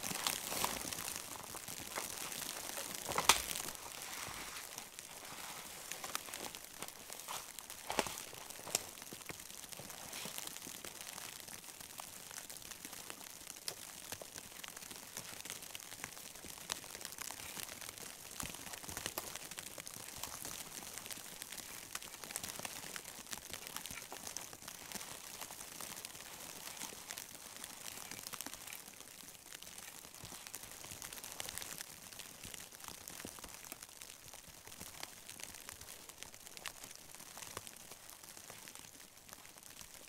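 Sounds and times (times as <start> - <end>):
footsteps crunching in snow: 0.0 - 10.4
evergreen boughs rustling: 0.0 - 10.5.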